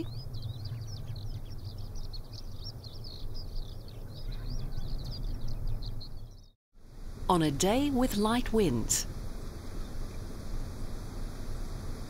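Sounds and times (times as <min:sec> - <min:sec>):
small birds chirping: 0:00.0 - 0:06.6.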